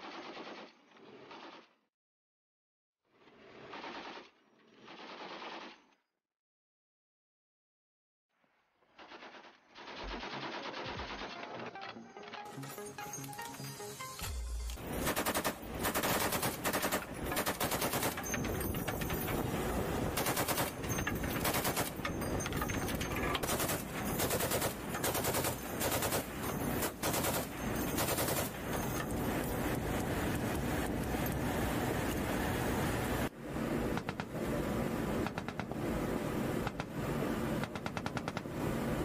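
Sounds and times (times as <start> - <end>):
machine gun firing bursts: 14.8 - 19.2, 20.1 - 29.0.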